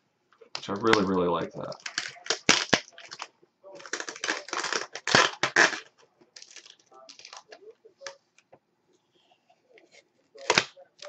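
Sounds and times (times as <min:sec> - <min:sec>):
plastic bag crinkling: 0:00.8 - 0:08.1.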